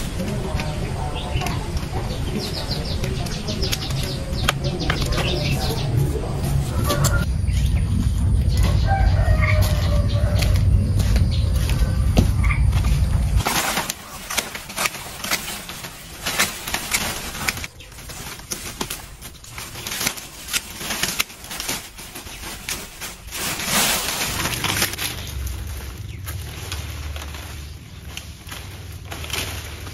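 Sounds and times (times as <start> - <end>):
loud low rumble: 0.0 - 15.2, 22.8 - 29.9
dry leaves crackling and rustling: 0.0 - 29.9.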